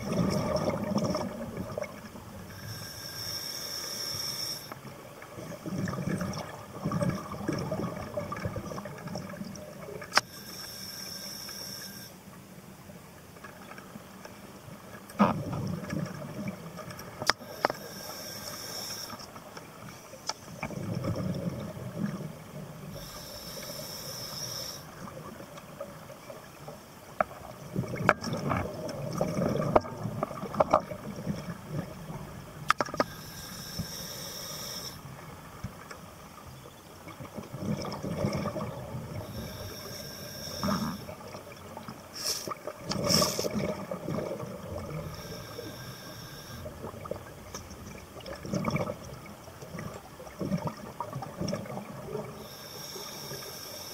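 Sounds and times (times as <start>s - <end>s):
rumble of exhaled bubbles: 0.0s - 2.6s, 4.9s - 10.1s, 15.2s - 16.9s, 20.5s - 23.1s, 27.3s - 33.1s, 37.0s - 39.6s, 42.6s - 45.3s, 46.7s - 52.4s
regulator inhale hiss: 2.5s - 4.9s, 10.2s - 12.2s, 17.4s - 19.4s, 22.9s - 25.1s, 33.0s - 35.1s, 39.2s - 41.3s, 42.1s - 43.5s, 45.0s - 46.9s, 52.4s - 53.9s.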